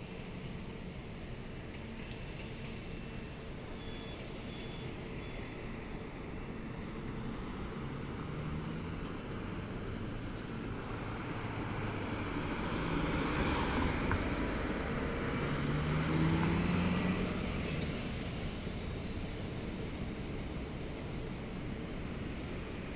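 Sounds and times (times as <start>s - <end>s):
cars passing: 5.8s - 22.9s.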